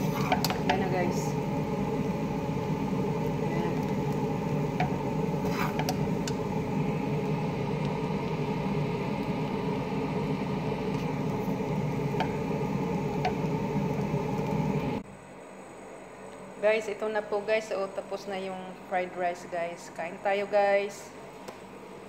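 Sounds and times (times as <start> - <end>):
rice stirred in frying pan: 0.0 - 0.8, 3.6 - 6.5
steady mechanical hum: 0.0 - 22.0.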